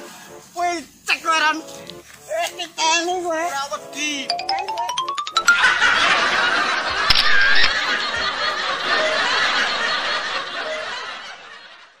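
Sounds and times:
crowd laughing: 5.4s - 12.0s.

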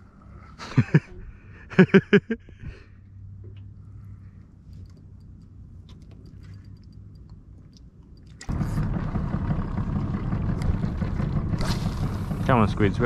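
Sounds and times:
boat motor running: 8.4s - 13.0s.

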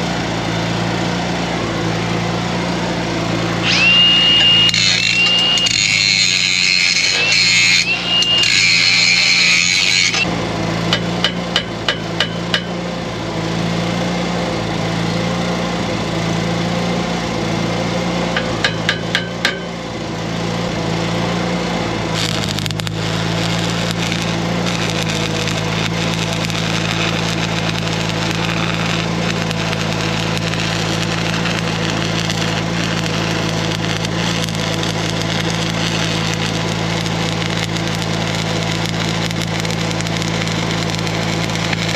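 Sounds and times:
high hiss: 3.6s - 10.2s
arc welding crackle: 3.6s - 10.3s, 22.0s - 41.9s.

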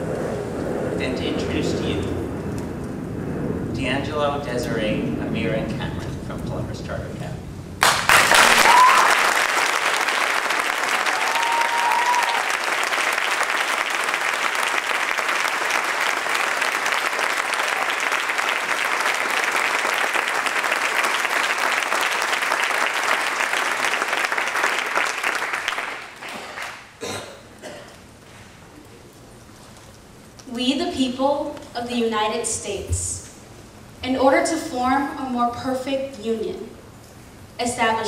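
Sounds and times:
audience applauding: 7.8s - 27.0s.

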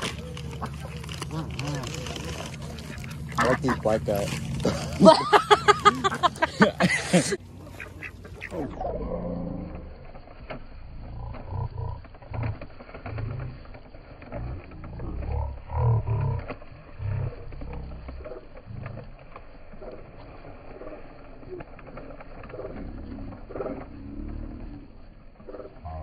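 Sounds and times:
ducks quacking: 0.0s - 8.9s, 17.2s - 24.7s.

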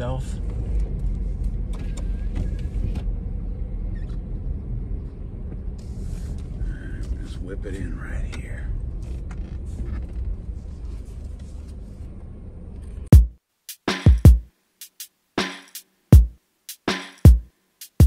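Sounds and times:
drum-machine beat music: 13.1s - 18.0s.

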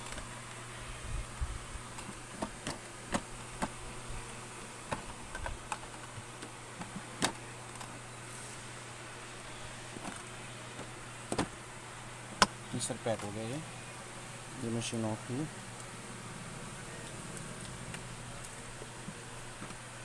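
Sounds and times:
faint steady hum: 0.0s - 20.0s
plastic case clicks and knocks: 10.8s - 11.5s.

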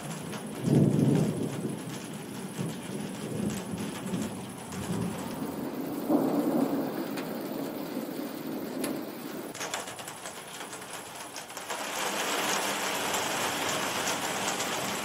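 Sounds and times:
thunder rumbling: 0.0s - 9.6s
raindrop ticks: 0.0s - 15.0s
steady rain: 0.0s - 15.0s.

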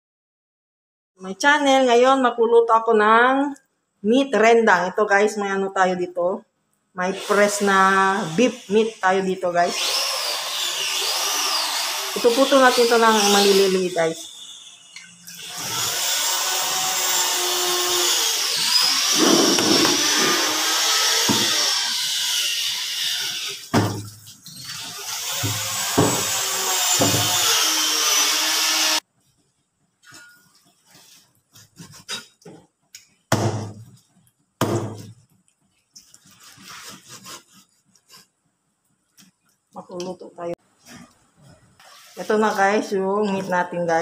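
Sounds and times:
meat cleaver chopping on board: 19.2s - 20.5s, 21.3s - 21.6s, 25.4s - 26.3s.

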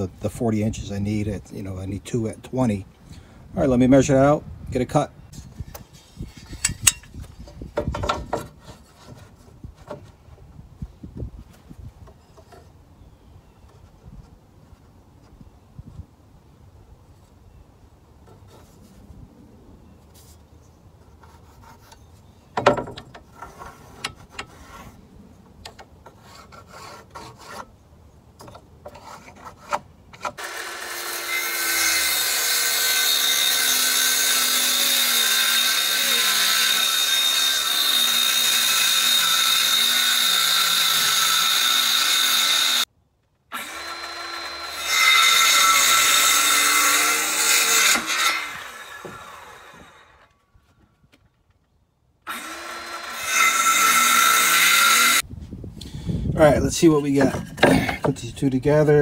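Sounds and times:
circular saw cutting wood: 28.9s - 42.9s, 43.5s - 50.3s, 52.3s - 55.2s.

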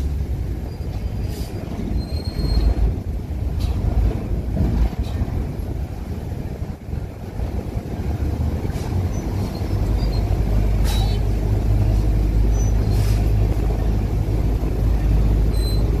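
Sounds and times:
ferry engine rumbling: 0.0s - 16.0s
brief hisses: 12.9s - 13.3s.

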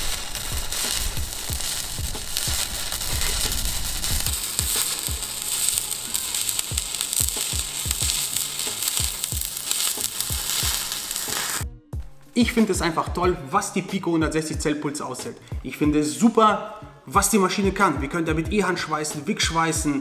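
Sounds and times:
welding arc crackling hiss: 0.0s - 11.6s.

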